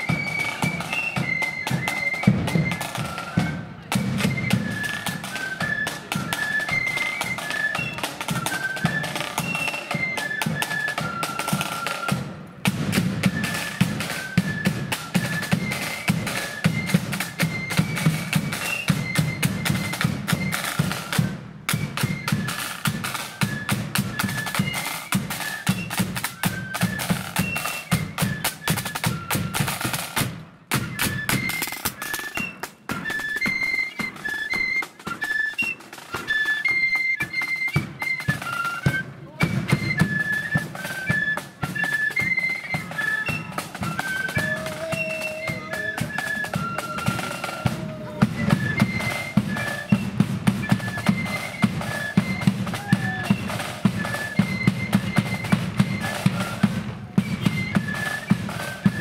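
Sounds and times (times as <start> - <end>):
flutes playing quick melody: 0.0 - 59.0
rattling side drums: 3.9 - 34.3.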